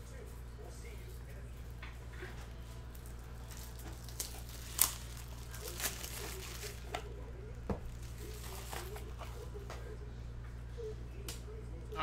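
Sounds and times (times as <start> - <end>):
trading cards crinkling and tapping: 1.7 - 9.9.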